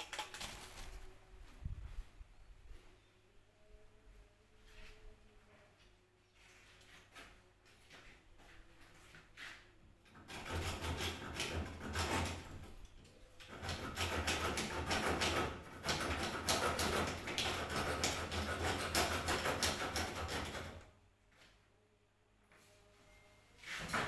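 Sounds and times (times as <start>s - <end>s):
window frame scraping and rattling: 10.1s - 12.8s, 13.4s - 20.8s.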